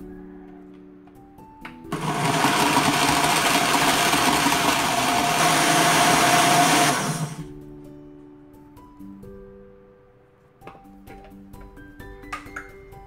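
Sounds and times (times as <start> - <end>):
blender running: 1.9 - 7.5.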